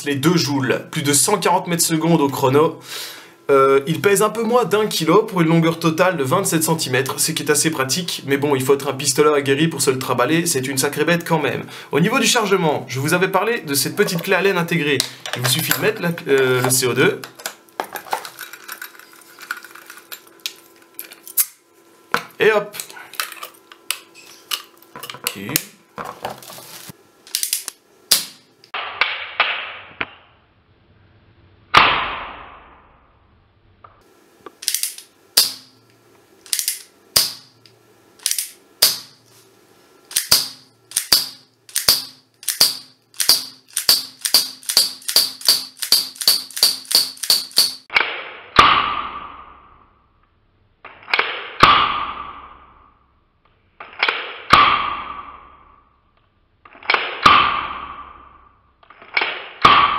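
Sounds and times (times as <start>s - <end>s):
hammer cocking clicks: 34.6s - 35.6s, 36.4s - 37.4s, 38.2s - 39.0s, 40.1s - 47.8s
revolver cylinder clicking: 40.1s - 47.8s.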